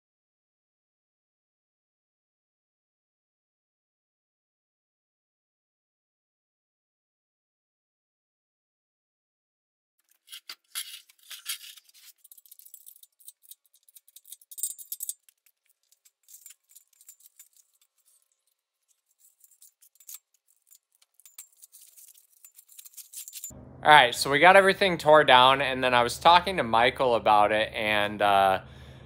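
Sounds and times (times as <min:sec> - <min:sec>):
metallic chain clinks and jangles: 0:10.0 - 0:23.5.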